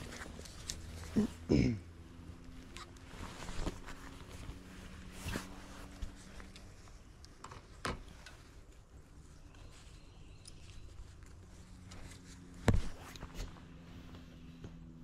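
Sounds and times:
rustling of handling: 0.0 - 1.3, 2.2 - 15.0.

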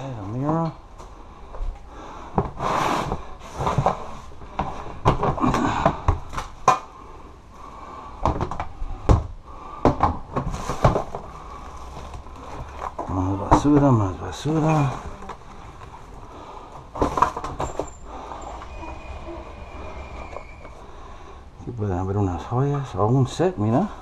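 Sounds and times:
crinkly plastic rustling: 10.4 - 13.1.

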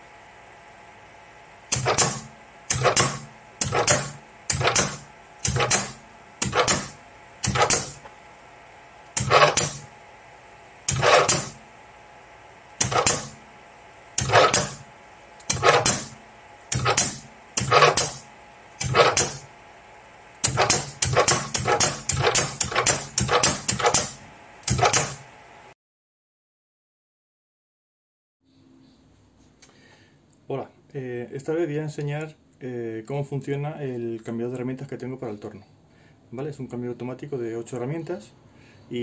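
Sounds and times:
tool changer mechanical clunking: 1.7 - 8.1, 9.1 - 9.9, 10.9 - 11.6, 12.8 - 13.4, 14.2 - 18.2, 18.8 - 19.5, 20.4 - 25.2.

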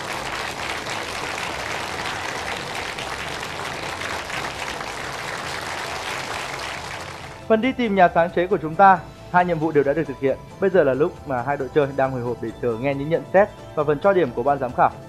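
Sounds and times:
crowd clapping: 0.0 - 7.5.

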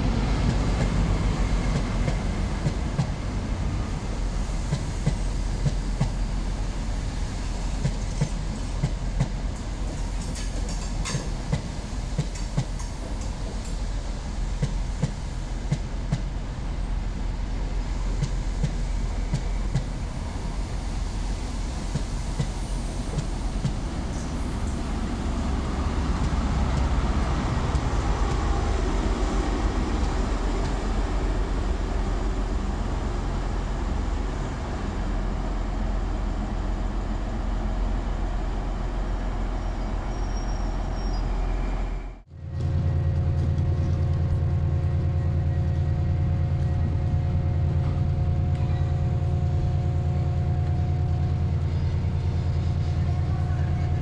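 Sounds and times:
diesel locomotive low drone: 0.0 - 54.0
train wheels clicking over rail joints: 7.8 - 14.0, 18.1 - 20.0, 21.8 - 28.9.

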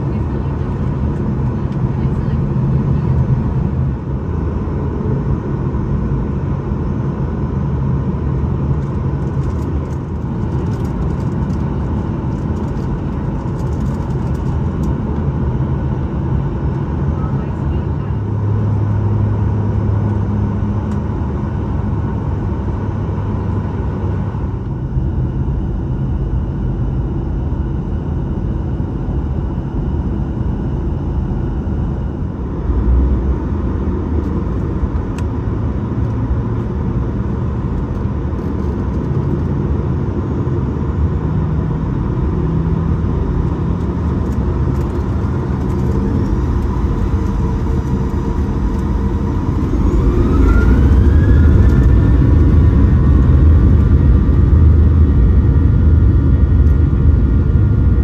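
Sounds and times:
jet engines heard from cabin: 0.0 - 58.0
engines spooling up with whine: 44.2 - 57.1.

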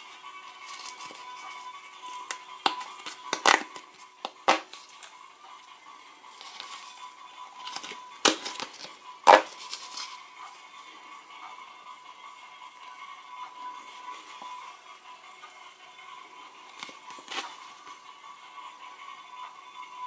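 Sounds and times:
sticker packet crinkling and snapping: 2.2 - 5.1, 7.6 - 10.2, 16.7 - 17.6.

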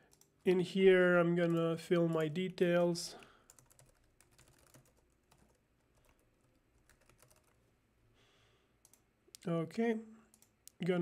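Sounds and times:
typing on a computer keyboard: 3.4 - 7.6, 10.3 - 10.6.

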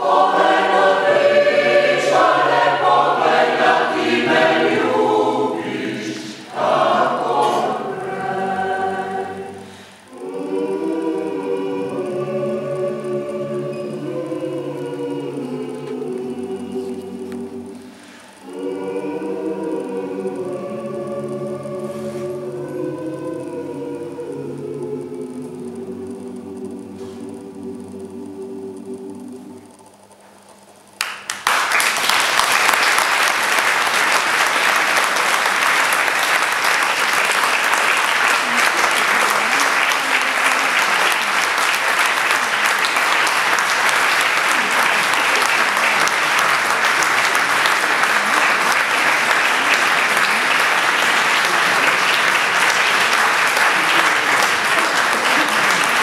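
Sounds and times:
choir singing chord: 0.0 - 29.8, 31.9 - 56.0
audience applause: 31.0 - 56.0.

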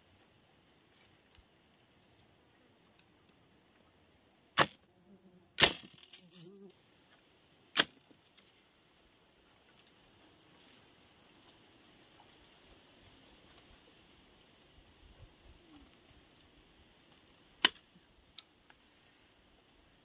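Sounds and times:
sharp knocks of bamboo: 4.6 - 4.8, 5.6 - 6.2, 7.7 - 8.2, 17.6 - 17.9.

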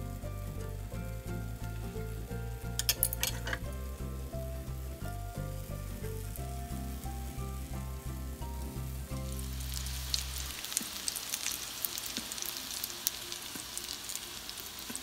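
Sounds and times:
background music with bass beat: 0.0 - 10.5
fritters sizzling in oil: 0.0 - 15.0.

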